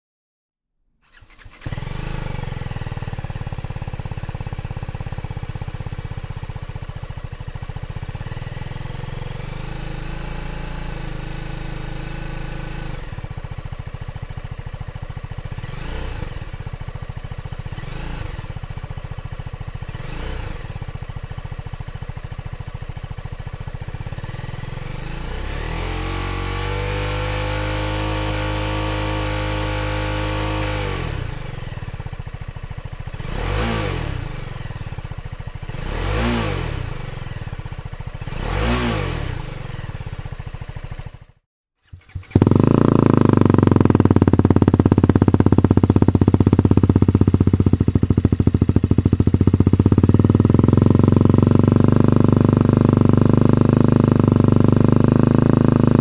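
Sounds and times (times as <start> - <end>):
motorcycle engine idling and revving: 1.0 - 56.0.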